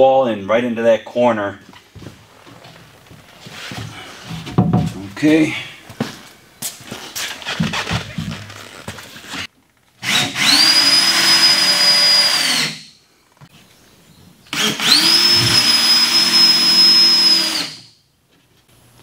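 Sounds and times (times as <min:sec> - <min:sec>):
power drill driving screws: 0:10.0 - 0:12.9, 0:14.5 - 0:17.9.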